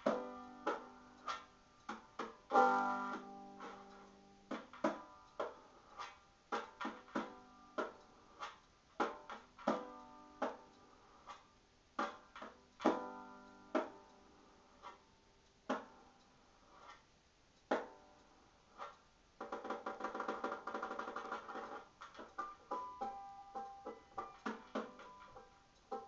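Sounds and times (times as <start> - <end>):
banjo playing: 0.0 - 5.6, 22.3 - 26.0.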